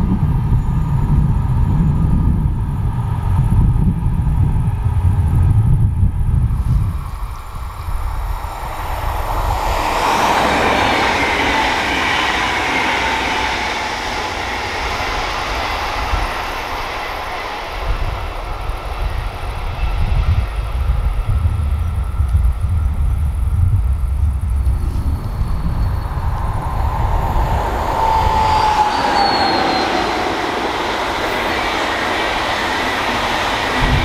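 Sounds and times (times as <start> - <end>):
train wheels on rails: 0.0 - 34.0
train motor whine: 24.6 - 34.0.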